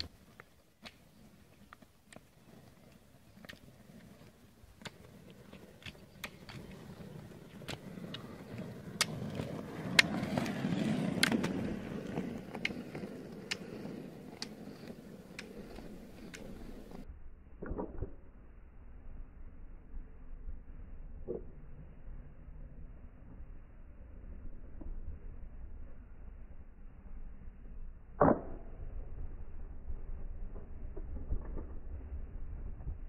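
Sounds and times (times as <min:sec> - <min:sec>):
ski poles clicking on road: 0:00.0 - 0:17.0
roller-ski wheels rumbling on tarmac: 0:00.0 - 0:17.1, 0:19.0 - 0:33.0.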